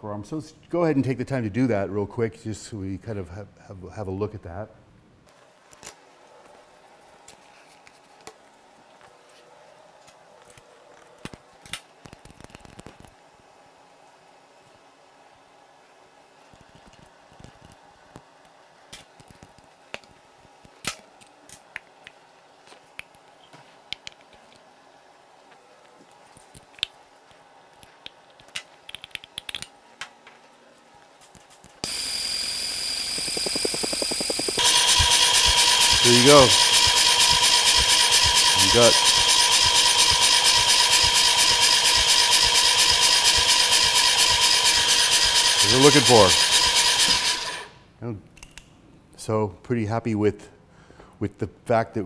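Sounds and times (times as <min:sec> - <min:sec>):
small metal clicks and taps: 0:28.0 - 0:29.7
hand tools clicking: 0:31.8 - 0:47.7
electric starter cranking engine: 0:31.8 - 0:47.8.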